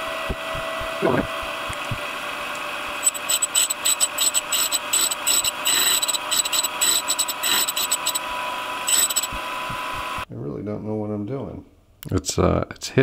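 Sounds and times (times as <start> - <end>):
hissing grinding bursts: 3.0 - 9.4
grinding wheel whining: 3.0 - 10.2.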